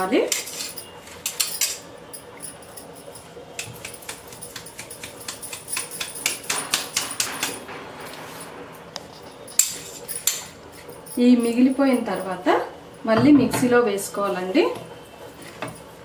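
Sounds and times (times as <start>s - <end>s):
metal sieve tapping bowl: 13.1s - 13.8s.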